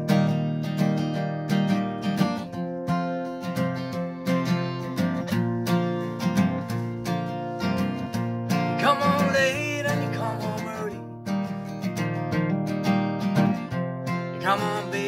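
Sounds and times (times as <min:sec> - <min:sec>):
acoustic guitar strumming: 0:00.0 - 0:15.0
man singing: 0:08.6 - 0:11.0, 0:14.3 - 0:15.0.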